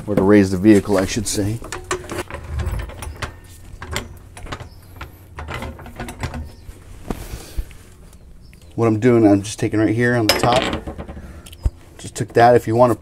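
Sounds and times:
hand tools clicking and clanking: 0.2s - 8.8s, 10.2s - 13.0s
sharp metal knocks: 10.3s - 11.4s.

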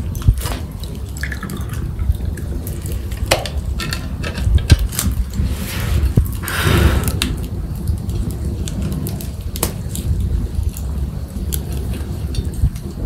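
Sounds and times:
low rumble: 0.0s - 13.0s
wood fire crackling and popping: 0.0s - 13.0s
hiss: 5.4s - 7.4s.

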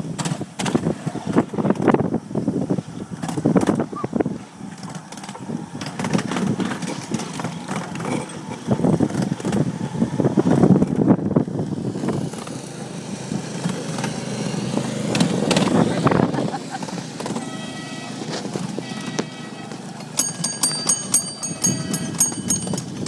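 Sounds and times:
trolley running rumble: 0.0s - 23.0s
rattles and knocks: 4.7s - 9.7s, 18.2s - 23.0s.

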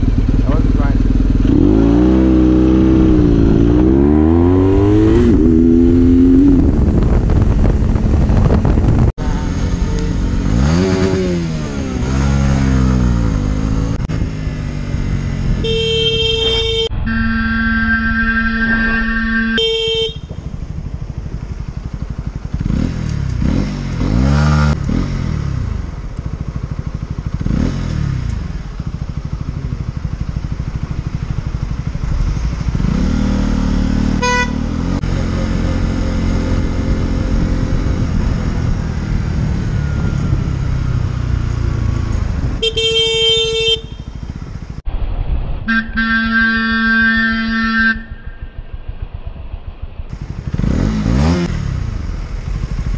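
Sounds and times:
motorcycle engine revving: 0.0s - 44.9s, 45.7s - 52.9s
horn blast: 15.6s - 20.3s, 34.2s - 34.7s, 45.7s - 48.5s.

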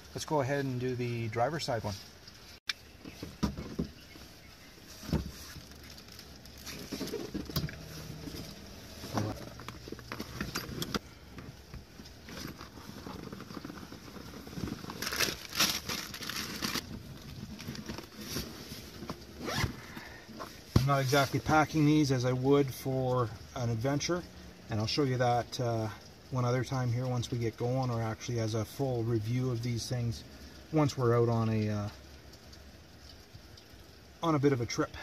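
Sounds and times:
fabric bag rustling: 12.2s - 20.6s.

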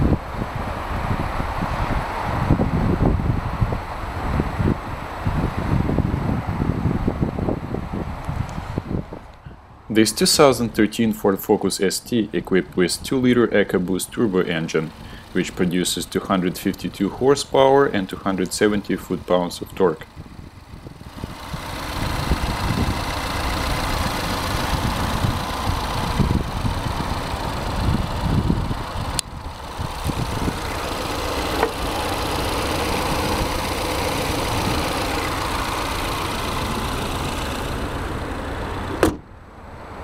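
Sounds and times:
car engine idling: 0.0s - 40.0s
car hood slamming shut: 38.9s - 39.3s.

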